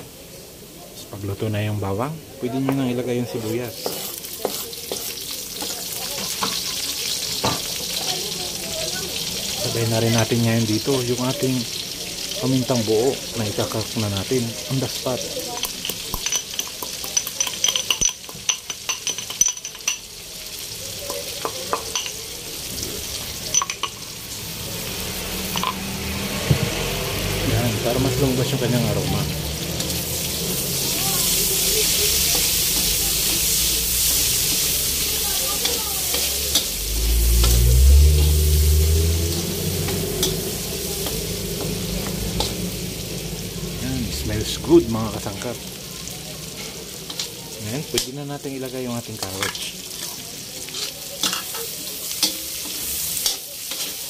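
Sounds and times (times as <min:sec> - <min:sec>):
onions sizzling in oil: 0:00.0 - 0:54.0
spatula scraping and tapping pan: 0:02.6 - 0:08.1, 0:15.5 - 0:20.1, 0:32.2 - 0:36.8, 0:39.8 - 0:42.7, 0:50.7 - 0:54.0
pestle clinking in stone mortar: 0:03.8 - 0:06.6, 0:15.5 - 0:20.1
low rumble: 0:36.6 - 0:45.8.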